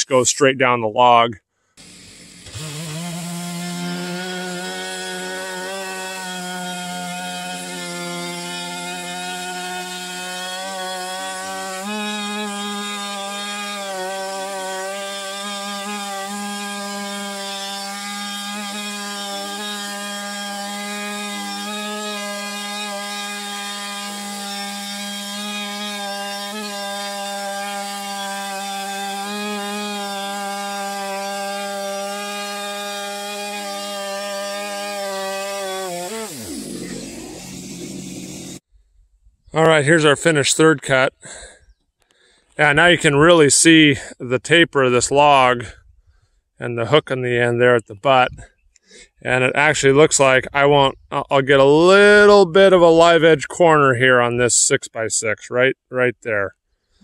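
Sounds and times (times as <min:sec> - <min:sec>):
chainsaw cutting log: 0:01.8 - 0:38.7.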